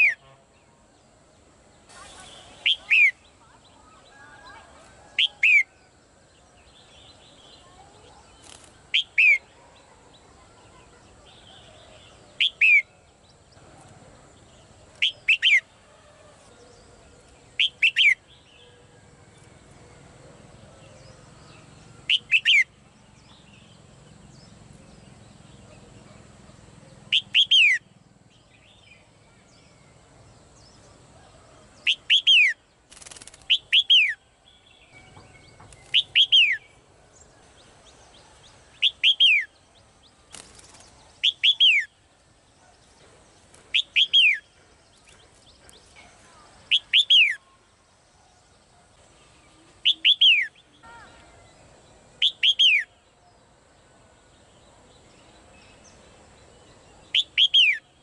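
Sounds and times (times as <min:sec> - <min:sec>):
bird whistled calls: 0:02.0 - 0:03.3, 0:15.0 - 0:15.6, 0:22.1 - 0:22.7, 0:27.1 - 0:27.8, 0:35.8 - 0:36.7, 0:38.8 - 0:39.5, 0:41.2 - 0:41.9, 0:43.8 - 0:44.4, 0:46.7 - 0:47.4, 0:49.8 - 0:50.6, 0:52.2 - 0:52.9, 0:57.1 - 0:57.9.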